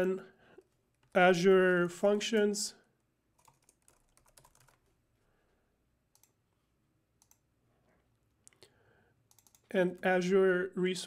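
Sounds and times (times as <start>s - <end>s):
computer keyboard and mouse clicks: 3.4s - 4.9s, 6.1s - 6.4s, 7.2s - 7.4s, 9.3s - 9.7s.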